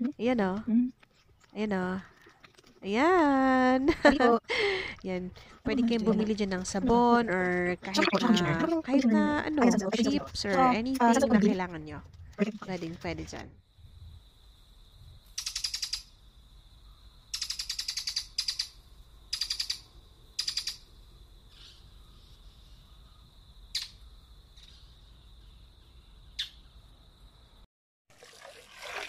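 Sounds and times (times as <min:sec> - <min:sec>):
bird chirping: 0:15.4 - 0:16.1, 0:16.9 - 0:20.8, 0:24.6 - 0:26.8.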